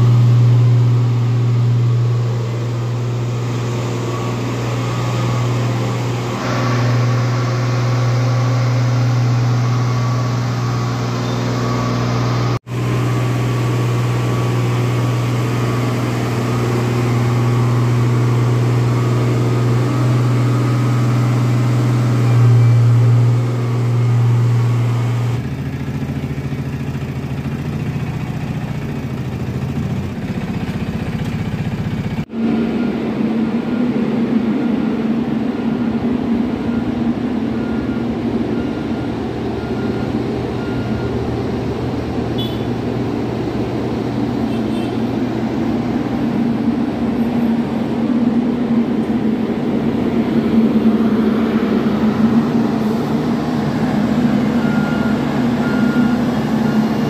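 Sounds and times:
engine steady higher hum: 0.0s - 57.0s
road roller engine drone: 0.0s - 57.0s.

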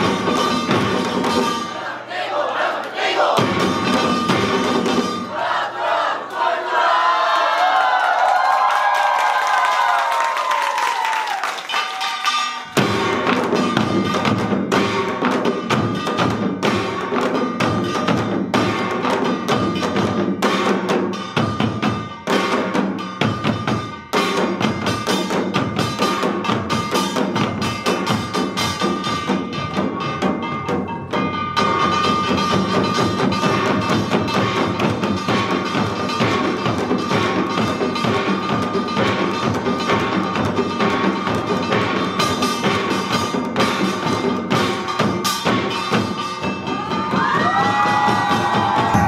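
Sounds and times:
hourglass drums: 0.0s - 2.0s, 3.4s - 5.5s, 11.7s - 49.0s.

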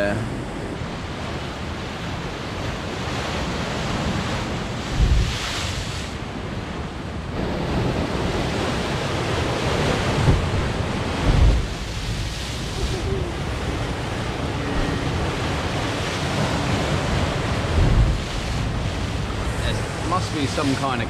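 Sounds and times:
waves crashing on rocks: 0.0s - 21.0s
wind on microphone: 0.0s - 21.0s
heavy low thumps: 4.9s - 5.3s, 10.2s - 12.2s, 17.7s - 20.1s.

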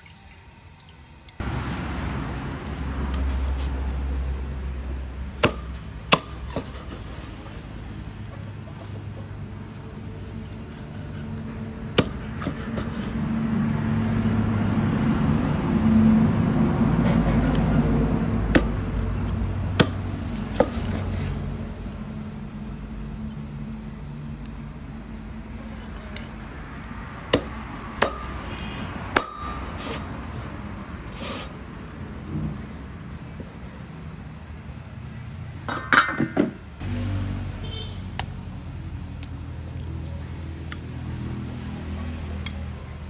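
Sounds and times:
vehicle engine rumbling past: 1.4s - 6.1s, 13.0s - 23.0s, 26.6s - 35.4s, 36.7s - 39.2s, 39.9s - 43.0s
cleaver chopping on wooden board: 5.4s - 6.8s, 12.0s - 13.0s, 19.8s - 21.1s.

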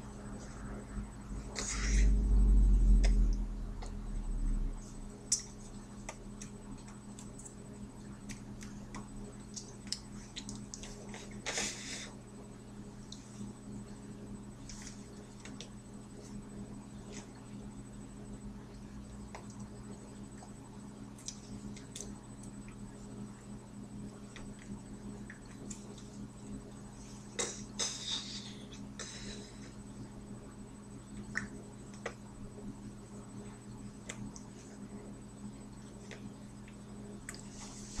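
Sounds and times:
electrical hum with high whine: 0.0s - 38.0s
rustles of hands and sleeves: 37.4s - 38.0s.

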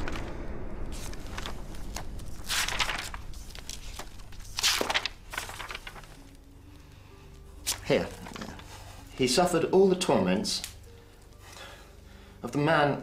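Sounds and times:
book pages turning: 0.0s - 9.6s, 10.6s - 11.8s.

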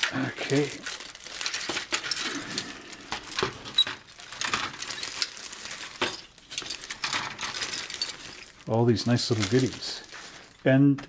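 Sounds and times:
plastic parts clicking: 0.0s - 8.7s
plastic bag crinkling: 0.0s - 10.7s.

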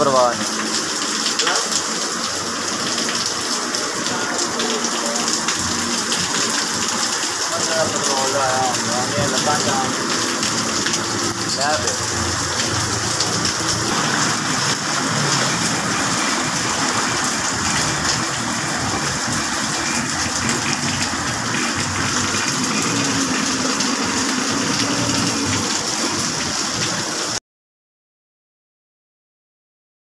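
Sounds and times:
floodwater flowing: 0.0s - 27.4s
heavy rain: 0.0s - 27.4s.

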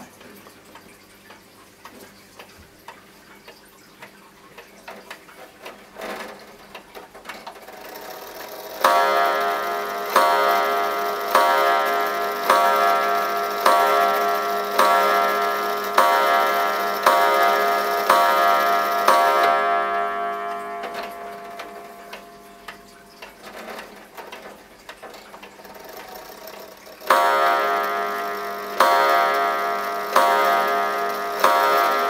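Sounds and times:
wall clock ticking: 0.0s - 32.0s
clock striking: 4.6s - 32.0s.

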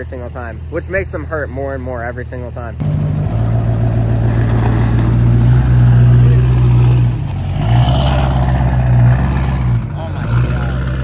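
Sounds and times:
diesel truck engine pulling away: 2.8s - 11.0s.

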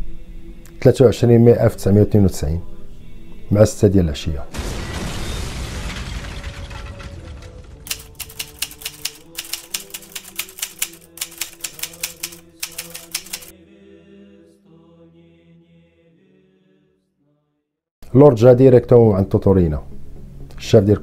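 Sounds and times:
slow chant with held notes: 0.0s - 4.5s, 8.9s - 17.6s
explosion rumble: 4.5s - 7.9s
typewriter key clacks: 7.9s - 13.5s.

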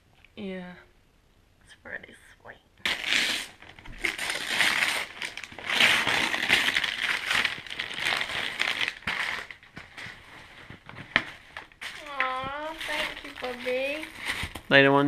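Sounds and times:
wrapping paper rustling and crumpling: 2.9s - 14.8s.

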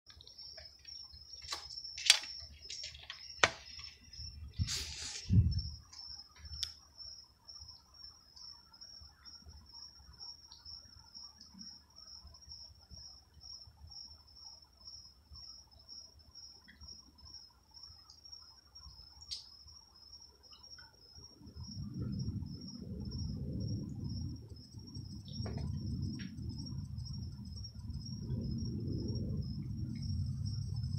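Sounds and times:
night insects trilling: 0.1s - 30.9s
faint sharp clicks: 19.2s - 19.5s.

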